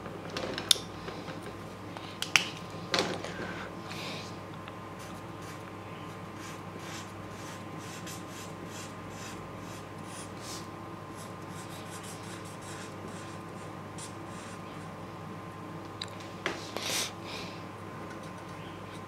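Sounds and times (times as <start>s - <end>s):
faint steady hum: 0.0s - 19.0s
marker scratching on paper: 6.4s - 14.8s.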